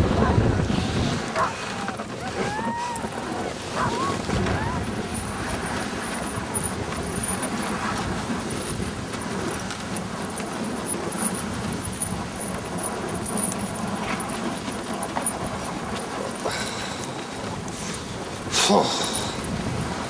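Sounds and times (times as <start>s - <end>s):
sled runners rushing over snow: 0.0s - 20.0s
harness metal jingling: 2.9s - 20.0s.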